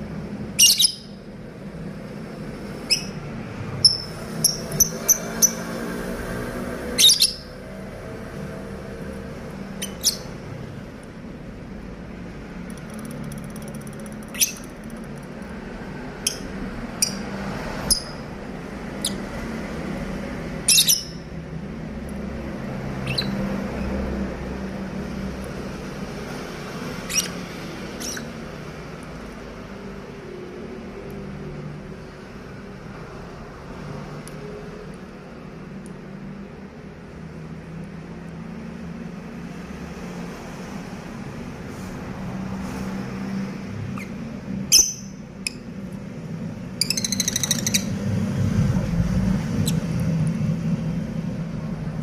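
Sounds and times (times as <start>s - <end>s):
lovebirds chirping shrilly: 0.5s - 1.2s, 2.8s - 3.2s, 3.8s - 5.8s, 6.9s - 7.5s, 9.7s - 10.4s, 14.1s - 14.9s, 20.7s - 21.3s, 22.9s - 23.5s, 27.0s - 28.4s, 43.8s - 45.7s, 46.8s - 48.0s.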